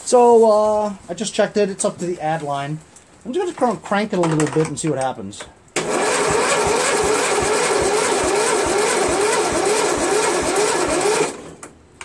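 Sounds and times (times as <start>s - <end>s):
electric starter cranking engine: 5.8s - 11.7s.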